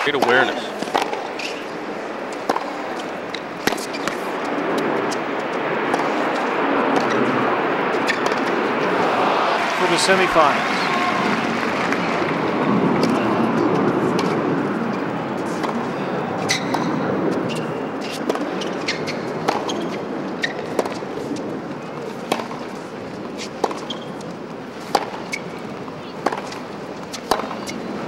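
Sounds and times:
racquets striking tennis ball: 0:00.0 - 0:07.3, 0:07.9 - 0:12.2, 0:15.4 - 0:24.2, 0:24.8 - 0:25.5, 0:26.2 - 0:27.9
crowd noise: 0:00.0 - 0:28.0
tennis ball bouncing: 0:00.1 - 0:01.7, 0:02.3 - 0:06.4, 0:07.0 - 0:07.2, 0:08.0 - 0:09.7, 0:15.4 - 0:21.1, 0:22.0 - 0:24.2, 0:24.8 - 0:25.5, 0:26.2 - 0:27.9.

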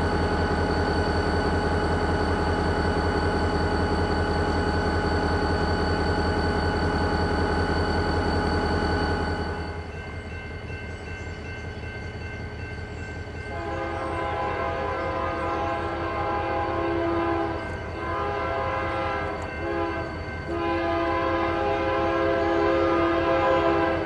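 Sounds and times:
diesel locomotive rumbling: 0:00.0 - 0:24.0
train air horn blasts: 0:13.5 - 0:24.0.

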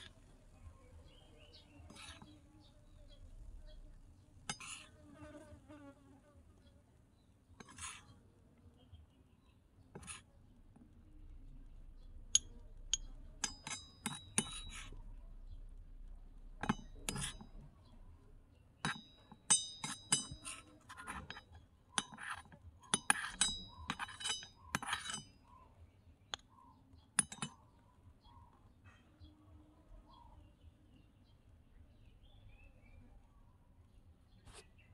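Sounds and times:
metal spoon scraping a wok: 0:07.6 - 0:08.1, 0:13.4 - 0:15.0, 0:16.6 - 0:17.6, 0:18.9 - 0:25.3.

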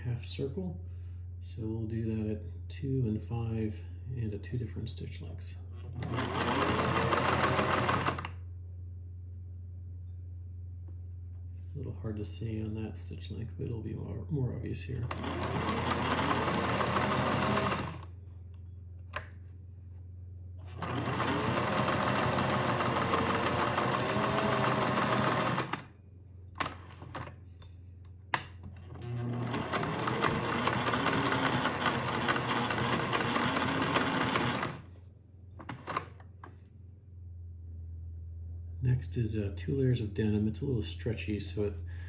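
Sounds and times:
sewing machine stitching: 0:05.8 - 0:08.4, 0:15.1 - 0:18.1, 0:20.6 - 0:25.9, 0:28.8 - 0:34.9.

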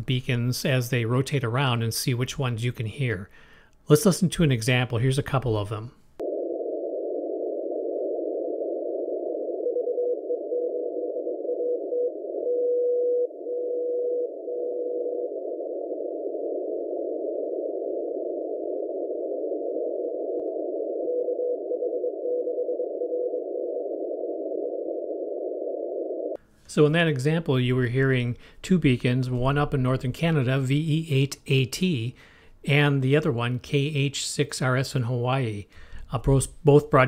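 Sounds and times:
shortwave static: 0:05.2 - 0:31.1
faint keyed signal: 0:08.0 - 0:19.2, 0:20.6 - 0:24.4.

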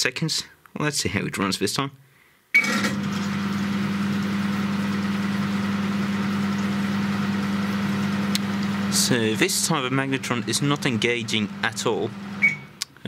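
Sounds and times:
microwave humming with fan: 0:02.6 - 0:12.8.

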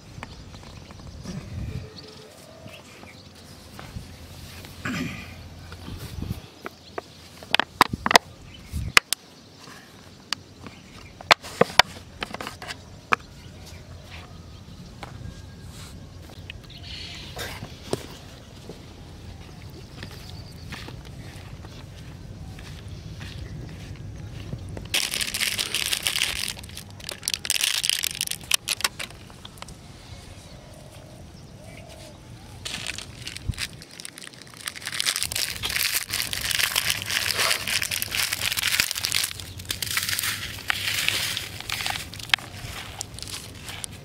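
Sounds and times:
packaging crinkling and crackling: 0:24.9 - 0:29.7, 0:32.6 - 0:44.0.

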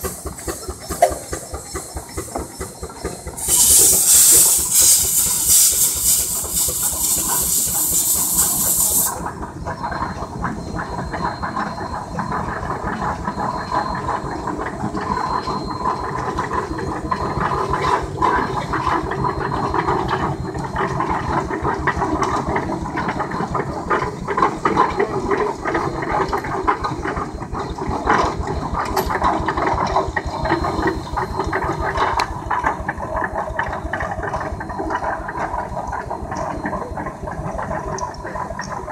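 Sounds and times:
steam venting hiss: 0:00.0 - 0:09.3
steam engine exhaust beat: 0:00.0 - 0:38.9.

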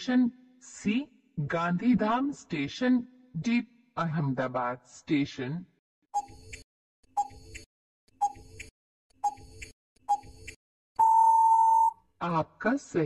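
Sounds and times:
timer ticks with pings: 0:06.2 - 0:06.6, 0:07.2 - 0:11.9
steady beep: 0:11.0 - 0:11.9.

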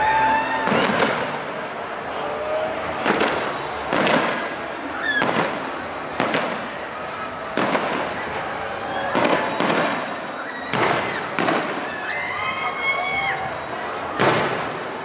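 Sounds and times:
firework shells bursting: 0:02.8 - 0:08.4.

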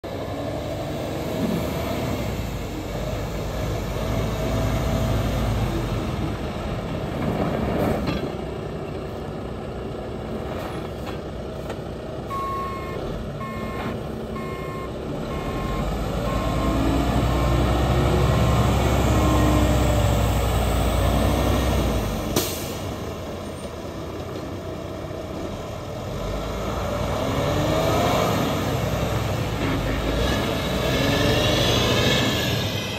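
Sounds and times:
backup alarm beeping: 0:12.3 - 0:16.8.

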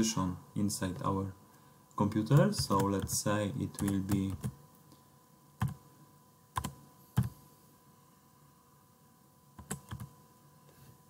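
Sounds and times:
computer keyboard keystrokes: 0:02.3 - 0:04.6, 0:05.6 - 0:05.8, 0:06.6 - 0:07.3, 0:09.6 - 0:10.1.

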